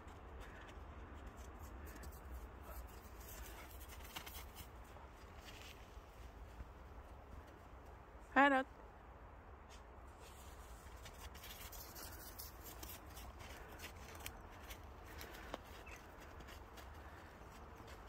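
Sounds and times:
footsteps crunching in snow: 1.3s - 7.6s, 9.7s - 18.0s
dog rustling in twigs: 10.2s - 17.2s.

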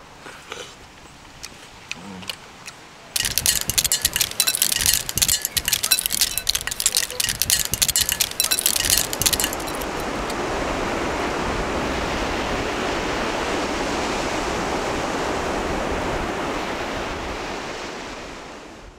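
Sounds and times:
sharp clinks: 3.2s - 10.4s.

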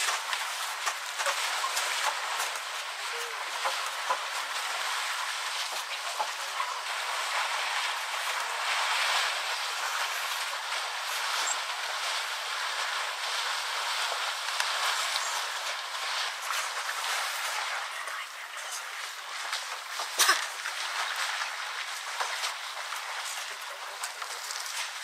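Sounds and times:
water splashing and sloshing: 0.0s - 25.0s.

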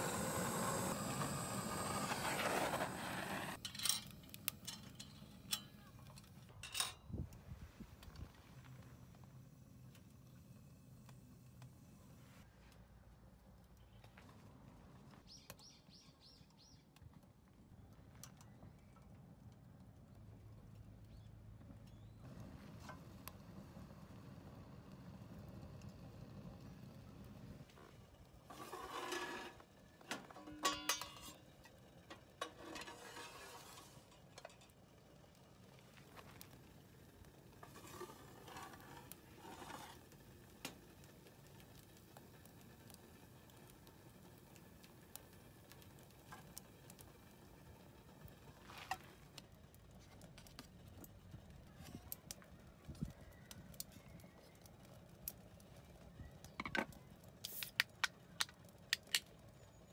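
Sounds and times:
metal clinking and scraping: 3.5s - 7.1s, 28.5s - 34.8s.

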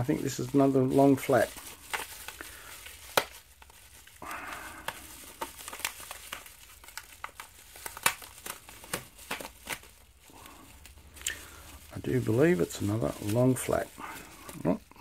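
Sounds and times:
bubble wrap crinkling and crackling: 0.0s - 15.0s.

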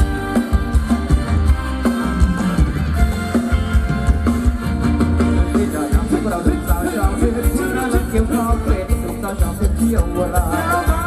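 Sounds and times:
live band dance music: 0.0s - 11.0s
person singing: 5.4s - 11.0s.

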